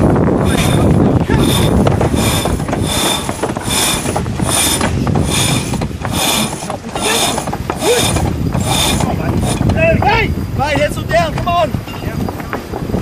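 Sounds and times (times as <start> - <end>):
water rushing: 0.0 - 10.6
wind: 0.0 - 13.0
rope whirring squeal through block: 0.4 - 9.8.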